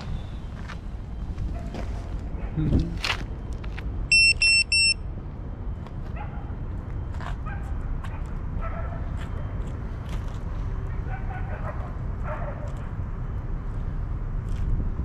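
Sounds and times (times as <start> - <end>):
wind rumble on microphone: 0.0 - 3.8, 9.2 - 15.0
high-pitched electronic beeps: 4.1 - 5.0.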